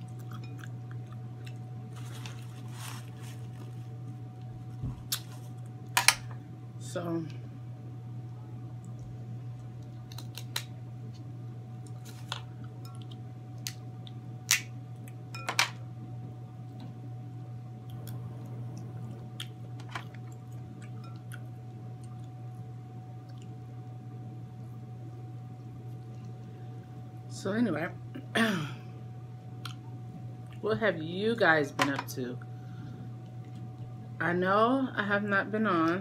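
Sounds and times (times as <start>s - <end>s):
steady low hum: 0.0s - 36.0s
crab shells cracking: 9.7s - 10.8s.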